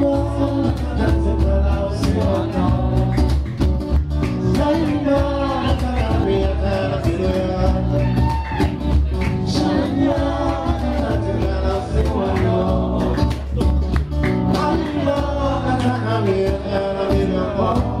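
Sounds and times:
man singing: 0:00.0 - 0:03.6, 0:04.4 - 0:18.0
bass guitar: 0:00.0 - 0:18.0
cajon beat: 0:00.0 - 0:18.0
strummed acoustic guitar: 0:00.0 - 0:18.0.

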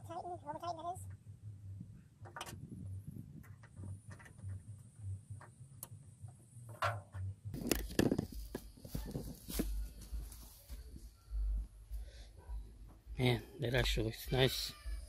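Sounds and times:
camera handling rumble: 0:07.6 - 0:09.8.

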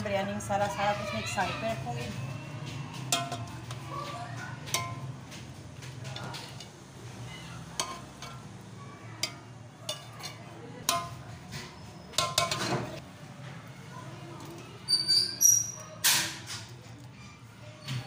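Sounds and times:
metal spoon clinking on pot: 0:03.0 - 0:03.8, 0:04.6 - 0:05.2, 0:07.6 - 0:08.6, 0:09.2 - 0:13.0.

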